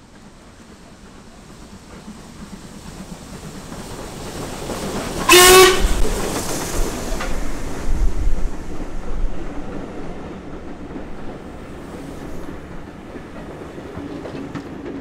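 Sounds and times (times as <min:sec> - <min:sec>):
steam train running noise: 0:00.0 - 0:15.0
steam locomotive whistle blast: 0:05.3 - 0:06.1.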